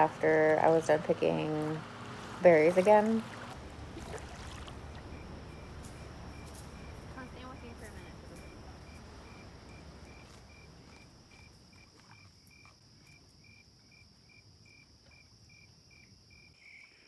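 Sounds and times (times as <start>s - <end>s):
low background noise: 0.0s - 12.5s
cricket chirping: 3.6s - 17.0s
high-pitched insect trill: 4.1s - 16.9s.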